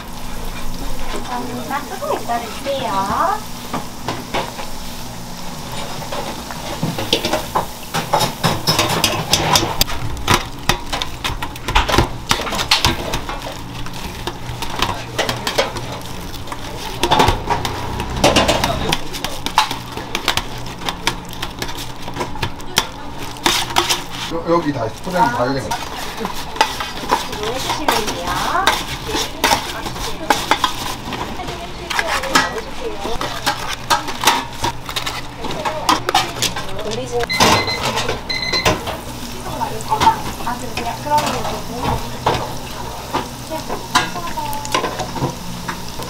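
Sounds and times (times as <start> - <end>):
low hum of kitchen equipment: 0.0 - 46.0
utensils and pans clinking: 5.6 - 46.0.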